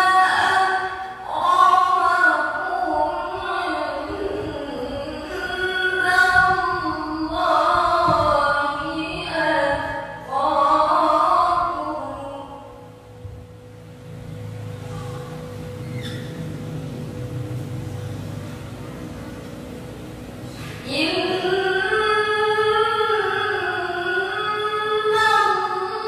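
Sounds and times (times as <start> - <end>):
woman reciting melodically: 0.0 - 13.8, 20.4 - 26.0
low steady hum: 0.0 - 26.0.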